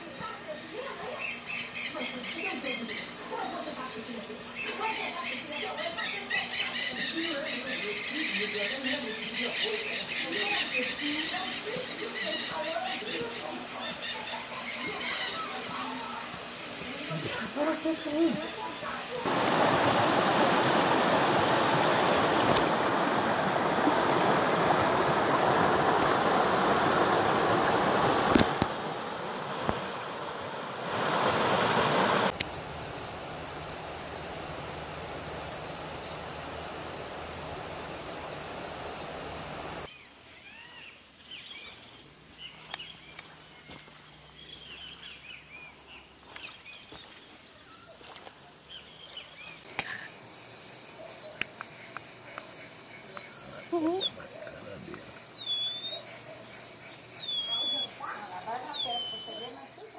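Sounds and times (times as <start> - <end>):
insect chorus at night: 0.0 - 59.9
rushing stream water: 18.6 - 32.7
small bird chirps: 55.3 - 56.1, 57.1 - 59.6.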